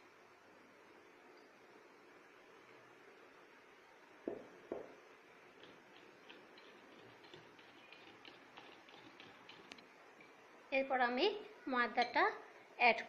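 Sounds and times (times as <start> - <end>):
glass bowl knocks: 4.3 - 5.0
whisk beating batter in bowl: 5.6 - 9.8.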